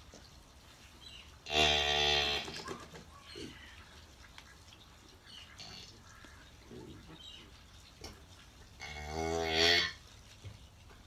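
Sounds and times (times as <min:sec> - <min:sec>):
cow mooing: 0:08.8 - 0:10.0.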